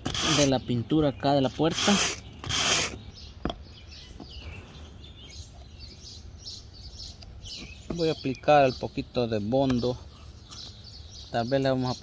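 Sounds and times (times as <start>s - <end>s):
sandpaper rubbing on door: 0.0s - 0.6s, 1.6s - 3.0s
faint bird chirps: 0.3s - 12.0s.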